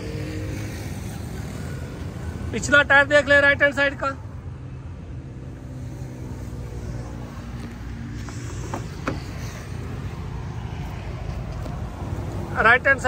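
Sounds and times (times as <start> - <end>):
car door latch clicks: 8.6 - 9.4.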